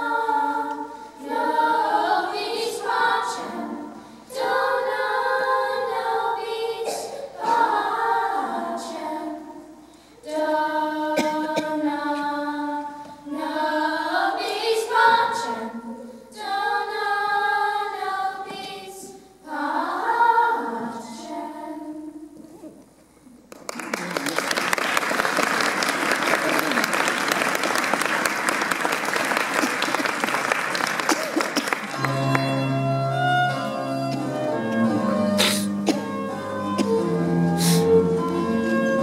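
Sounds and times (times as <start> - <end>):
children's choir singing a cappella: 0.0 - 22.6, 31.4 - 39.0.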